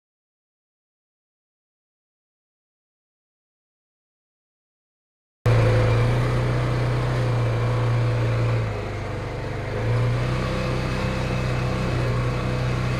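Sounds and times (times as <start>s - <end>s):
utility vehicle engine running: 5.5s - 12.9s.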